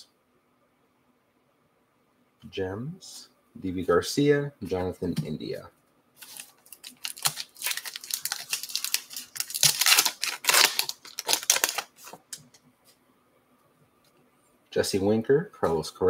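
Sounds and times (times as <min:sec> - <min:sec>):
wrapper being torn and crinkled: 0:06.2 - 0:12.4.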